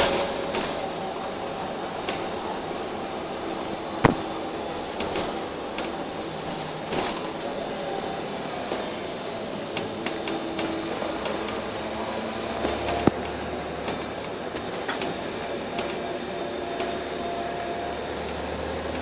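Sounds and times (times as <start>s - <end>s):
bus engine drone: 0.0s - 19.0s.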